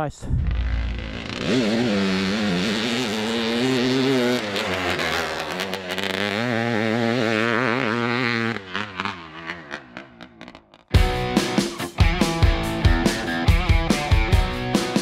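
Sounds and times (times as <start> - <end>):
two-stroke motorcycle engine revving: 0.4 - 11.2.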